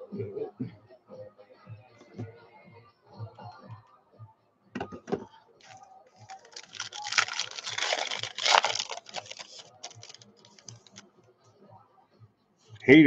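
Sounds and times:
foil wrapper tearing and crinkling: 5.6s - 11.0s.

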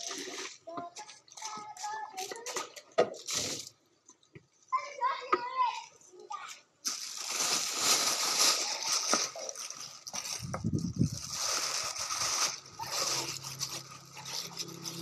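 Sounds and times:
wet cloth splashing and rustling: 6.9s - 14.0s
low rumble: 10.3s - 14.9s.

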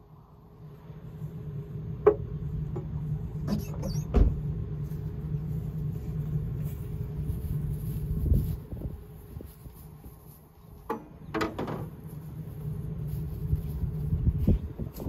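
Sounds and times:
engine idling: 0.0s - 9.6s, 10.8s - 15.0s
sharp knocks and clunks: 10.9s - 11.9s.

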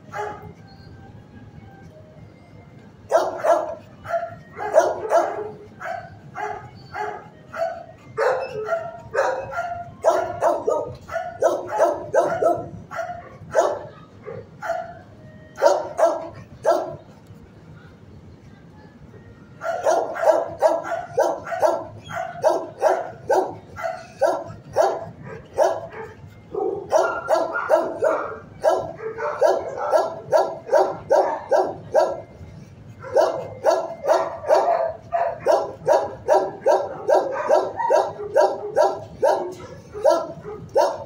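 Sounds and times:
dog barking rapidly: 3.1s - 14.0s, 19.6s - 32.2s, 33.0s - 41.0s.

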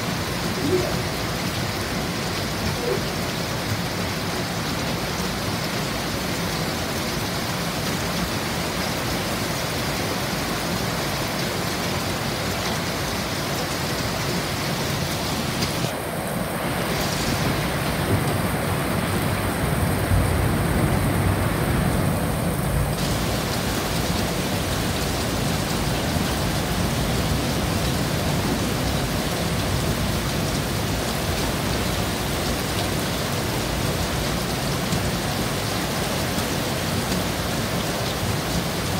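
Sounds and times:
heavy rain falling: 0.0s - 38.9s
low rumble of thunder: 17.4s - 31.6s.

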